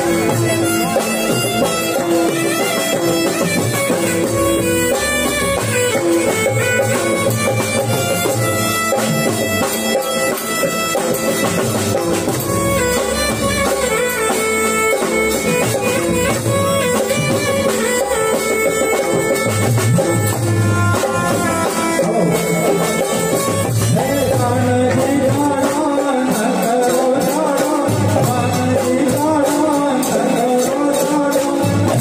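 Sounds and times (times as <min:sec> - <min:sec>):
electronic keyboard melody: 0:00.0 - 0:24.8
steady drum rhythm: 0:00.0 - 0:32.0.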